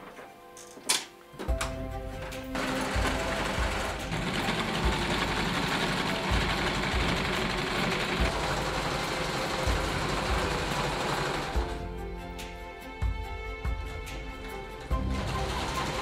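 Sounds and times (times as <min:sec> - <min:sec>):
sewing machine running: 0:02.2 - 0:11.9, 0:14.5 - 0:16.0.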